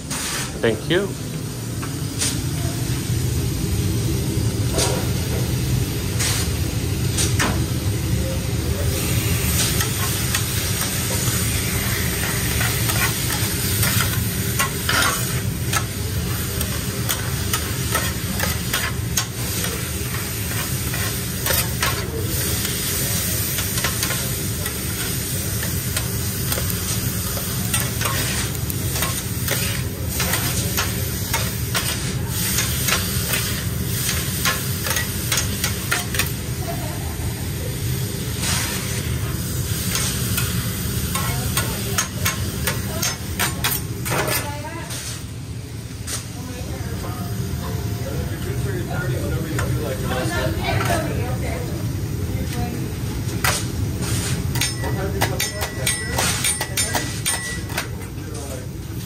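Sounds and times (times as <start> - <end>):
meat and vegetables sizzling on griddle: 0.1 - 0.5, 1.4 - 45.3, 45.9 - 59.0
metal spatulas clacking and scraping: 27.7 - 32.0, 54.5 - 58.0.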